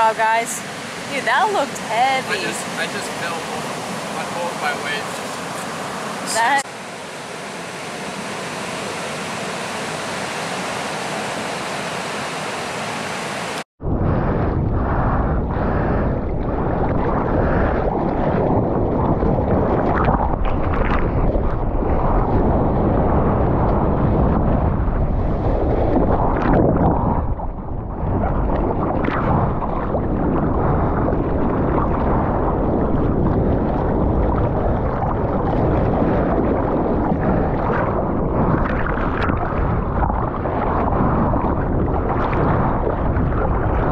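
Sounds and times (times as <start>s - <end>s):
wind on microphone: 0.0s - 6.7s, 13.5s - 43.9s
ocean surf washing onto beach: 0.0s - 13.6s
water splashing around surfboard: 16.1s - 43.9s.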